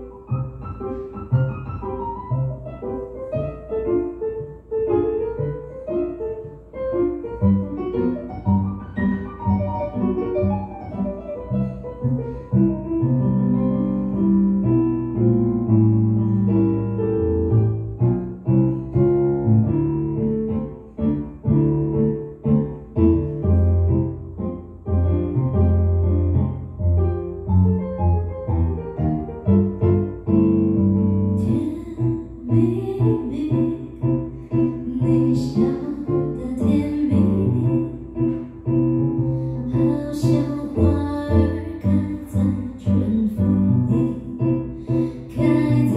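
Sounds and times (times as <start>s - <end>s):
keyboard piano chords: 0.0s - 45.9s
woman singing: 31.4s - 38.4s, 39.7s - 45.9s.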